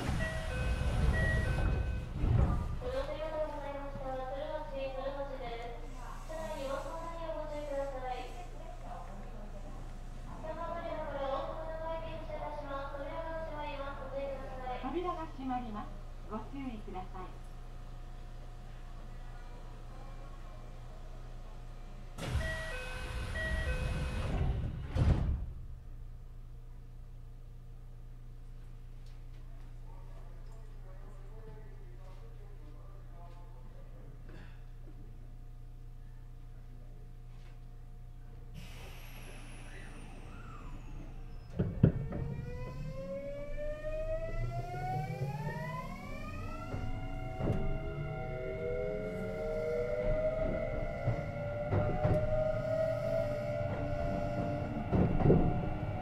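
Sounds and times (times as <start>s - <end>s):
train doors sliding shut: 0.0s - 2.8s, 22.2s - 25.6s, 45.3s - 48.0s, 49.1s - 56.0s
train low hum: 0.0s - 34.2s, 34.8s - 56.0s
low running rumble: 39.9s - 56.0s.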